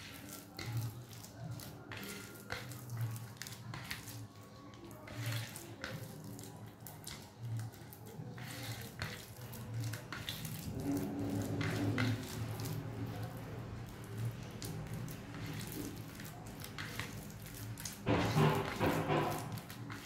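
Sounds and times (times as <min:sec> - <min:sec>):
hand squishing mashed food: 0:00.0 - 0:20.0.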